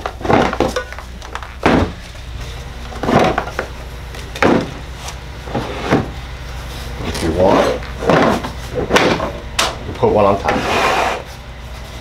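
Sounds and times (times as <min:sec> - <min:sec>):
plastic tool boxes clunking: 0:00.0 - 0:02.0, 0:03.0 - 0:03.7, 0:04.4 - 0:04.8, 0:08.0 - 0:09.7.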